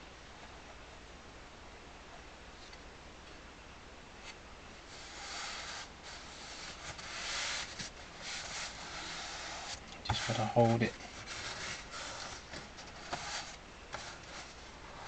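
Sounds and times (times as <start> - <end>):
hands brushing cloth: 4.9 - 15.0.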